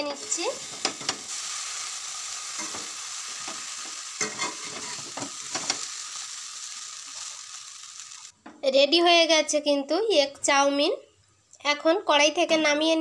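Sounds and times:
noodles sizzling in a pan: 0.0 - 8.4
spatula scraping a pan: 4.2 - 5.8.

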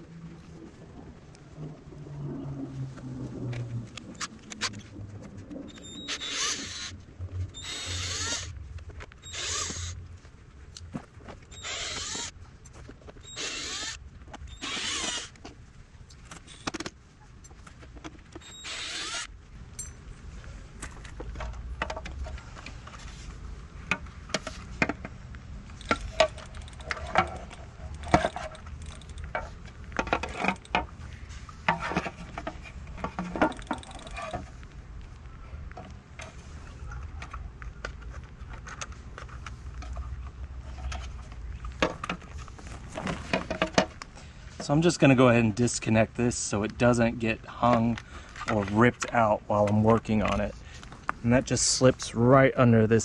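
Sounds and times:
cordless drill whirring: 5.9 - 6.9, 7.6 - 8.5, 9.2 - 10.0, 11.5 - 12.3, 13.3 - 15.4, 18.5 - 19.3.

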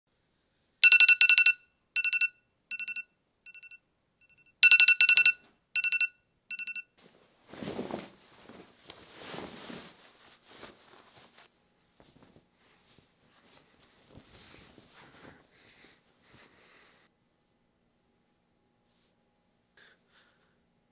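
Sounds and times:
phone alarm beeping: 0.8 - 6.9
soft rustling: 7.0 - 17.6.

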